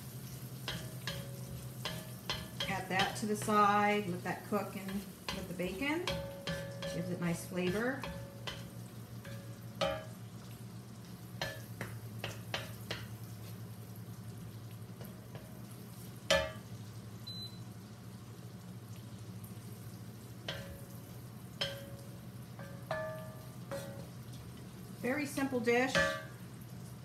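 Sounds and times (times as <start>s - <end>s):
food sizzling in a wok: 0.0s - 27.0s
wooden spatula knocking on pan: 0.7s - 3.7s, 4.9s - 10.2s, 11.4s - 13.1s, 16.3s - 16.6s, 20.5s - 21.0s, 21.6s - 22.0s, 22.6s - 24.1s, 25.9s - 26.4s.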